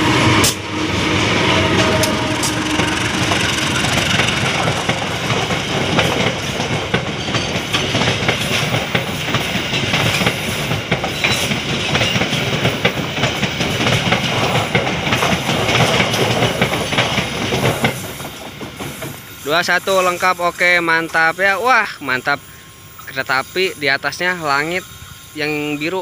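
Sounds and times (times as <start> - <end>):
train wheels rumbling on rail: 0.0 - 26.0
wheels clattering over rail joints: 1.6 - 19.2.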